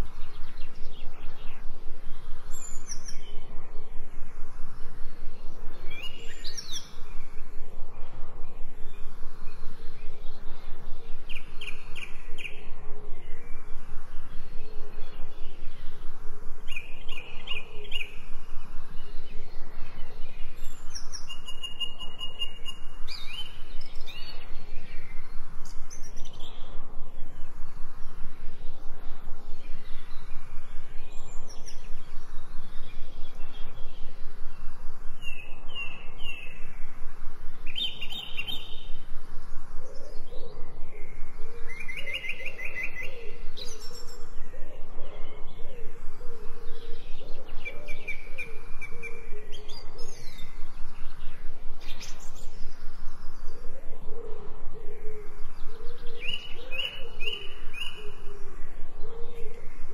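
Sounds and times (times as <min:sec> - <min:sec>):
birds chirping and trilling: 0:00.0 - 0:59.9.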